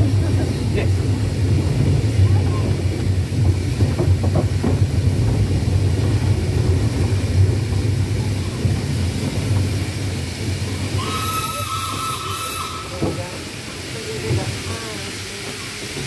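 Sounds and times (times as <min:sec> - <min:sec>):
steam engine rumbling on track: 0:00.0 - 0:16.0
steam whistle blast: 0:10.9 - 0:13.2.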